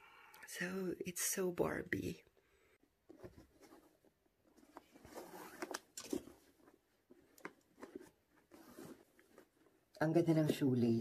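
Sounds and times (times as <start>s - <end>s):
shoelace rustling: 3.3s - 9.8s.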